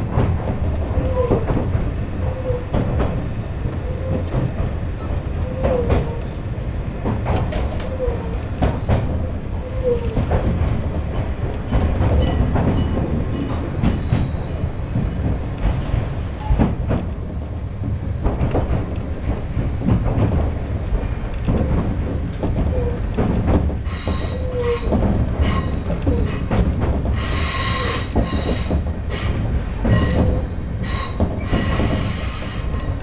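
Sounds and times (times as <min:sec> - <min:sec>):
clacks over rail joints: 0:00.0 - 0:33.0
train wheels rumbling: 0:00.0 - 0:33.0
train wheels squealing: 0:12.2 - 0:14.8, 0:23.9 - 0:26.6, 0:27.2 - 0:33.0.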